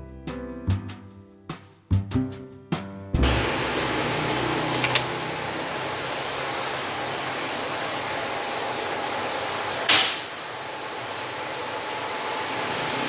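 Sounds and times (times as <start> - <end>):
glass jars clinking: 4.7 - 5.2.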